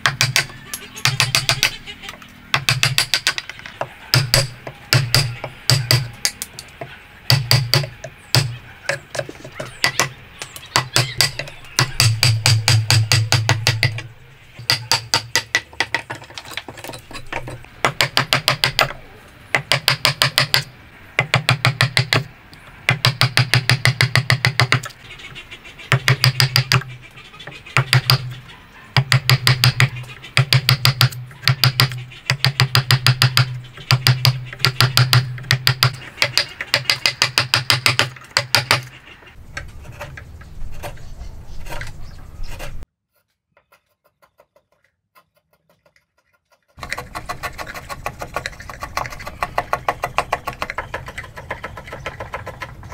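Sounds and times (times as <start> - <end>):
chisel paring wood by hand: 0.0 - 1.8, 2.5 - 22.3, 22.9 - 24.9, 25.9 - 26.9, 27.5 - 28.4, 29.0 - 38.9, 43.6 - 52.9
chisel strikes on wood: 0.0 - 1.8, 2.5 - 22.3, 22.9 - 24.9, 25.9 - 26.9, 27.8 - 28.4, 29.0 - 38.9, 46.8 - 52.9.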